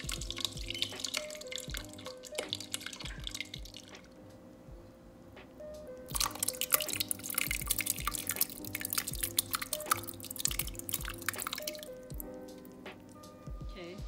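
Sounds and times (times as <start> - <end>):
apple mash pouring and splashing: 0.0 - 4.1, 6.1 - 12.3
soft background music: 0.0 - 14.0.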